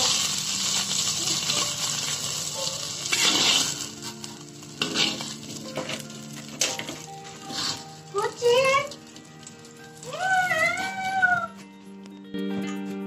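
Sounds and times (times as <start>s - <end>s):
metal spatula scraping wok: 0.0s - 9.5s
egg sizzling in oil: 0.0s - 11.5s.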